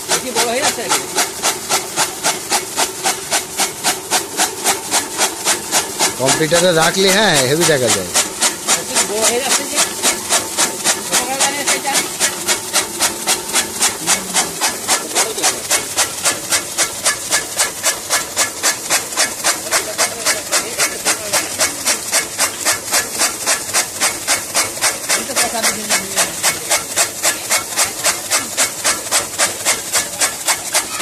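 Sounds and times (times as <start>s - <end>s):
chaff cutter chopping straw: 0.0s - 31.0s.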